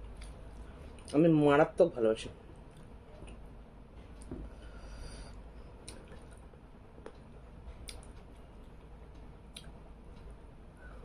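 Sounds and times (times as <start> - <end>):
steady low hum: 0.0 - 11.0
clicks and smacks of eating: 5.8 - 9.8.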